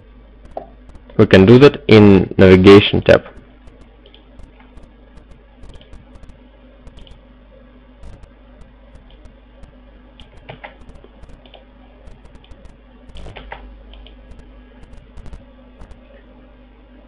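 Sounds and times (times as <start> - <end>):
low steady hum: 0.0 - 17.0
keyboard and mouse clicking: 5.2 - 7.2.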